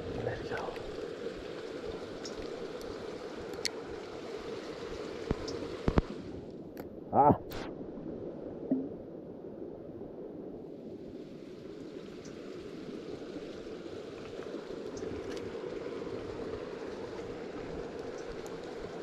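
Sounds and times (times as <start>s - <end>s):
creek water flowing: 0.0s - 6.4s, 10.8s - 19.0s
faint clicks: 1.6s - 3.8s, 12.2s - 12.4s, 17.9s - 18.6s.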